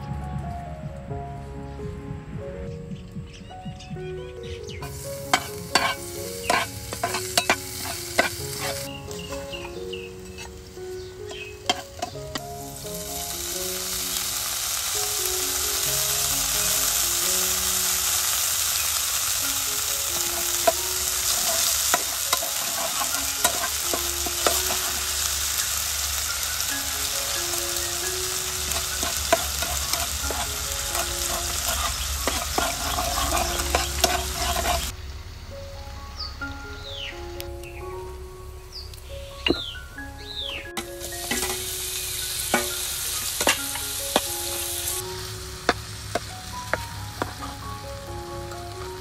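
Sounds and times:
garlic sizzling in oil: 0:04.7 - 0:35.0, 0:40.3 - 0:49.0
spatula scraping a pan: 0:04.8 - 0:10.6, 0:11.3 - 0:12.2, 0:20.4 - 0:25.2, 0:28.7 - 0:34.9.

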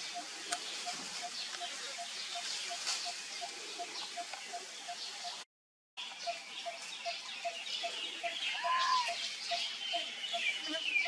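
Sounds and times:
insect hiss: 0:00.0 - 0:05.4.

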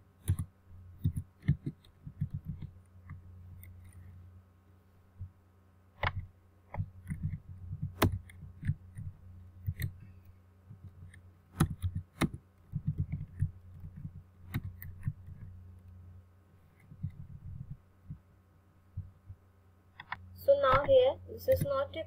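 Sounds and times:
steady low hum: 0:00.0 - 0:22.0
keyboard and mouse clicks: 0:00.2 - 0:04.0, 0:06.0 - 0:10.1, 0:10.7 - 0:16.0, 0:16.8 - 0:18.2, 0:20.0 - 0:21.8
soft low thumps: 0:18.9 - 0:19.5.

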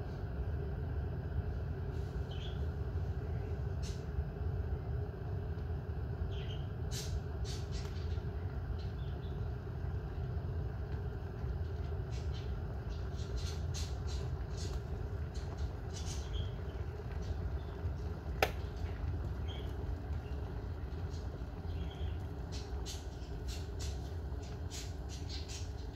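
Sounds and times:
kettle boiling: 0:00.0 - 0:25.9
kettle thermostat click: 0:18.3 - 0:18.7.

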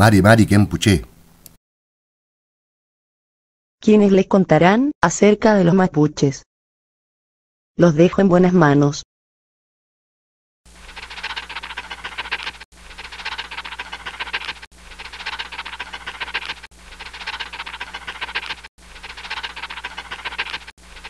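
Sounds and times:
marker pen scratching: 0:10.8 - 0:21.0.

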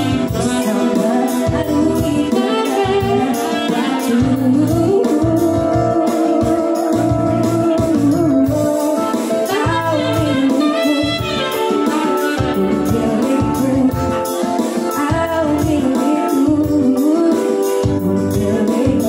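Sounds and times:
keyboard backing: 0:00.0 - 0:19.0
woman singing into a microphone: 0:00.0 - 0:19.0
saxophone run: 0:09.5 - 0:13.1.

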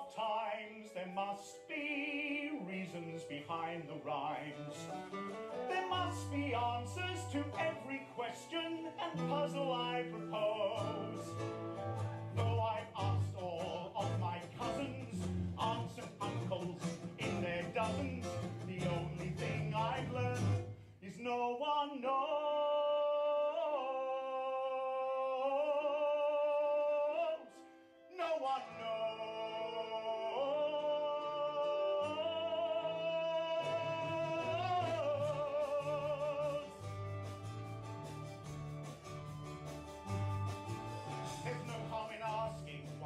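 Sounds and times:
man singing with vibrato: 0:00.0 - 0:37.2, 0:40.0 - 0:43.0
instrumental accompaniment: 0:03.9 - 0:20.8, 0:33.6 - 0:43.0.

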